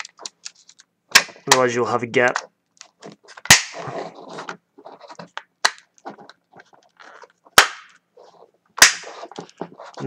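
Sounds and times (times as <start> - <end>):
plastic frame scraping: 3.0 - 5.4.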